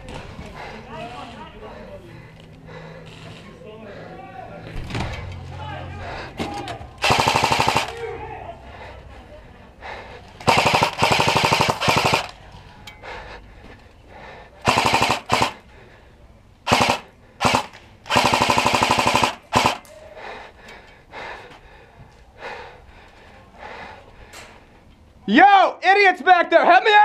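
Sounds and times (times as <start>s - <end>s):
airsoft rifle firing bursts: 7.0s - 8.0s, 10.4s - 12.4s, 14.6s - 15.6s, 16.7s - 19.9s.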